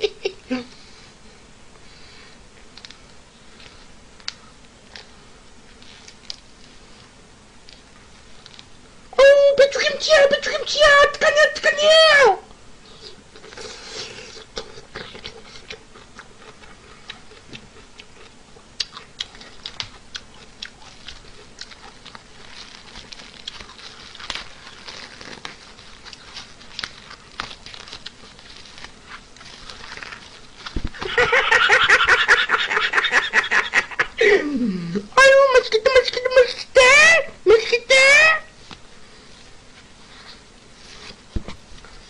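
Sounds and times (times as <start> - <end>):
chewing clicks and smacks: 14.6 - 22.2.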